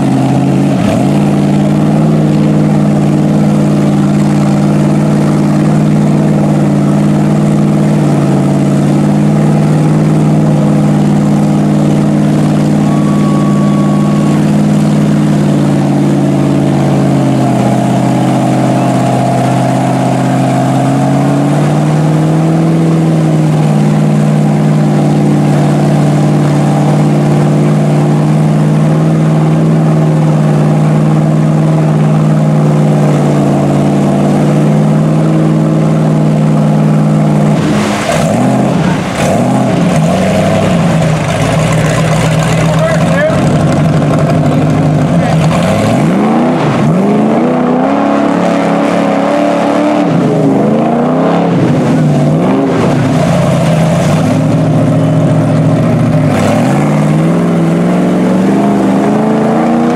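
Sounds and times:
tires spinning in mud: 0:00.0 - 0:59.9
truck engine revving high: 0:00.0 - 0:59.9.

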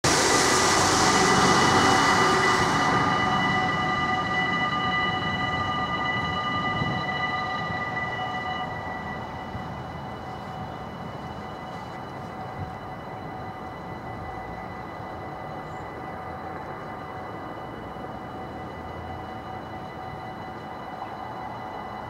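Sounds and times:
vehicle hissing on wet road: 0:00.0 - 0:04.6
level crossing warning bells: 0:00.0 - 0:22.0.

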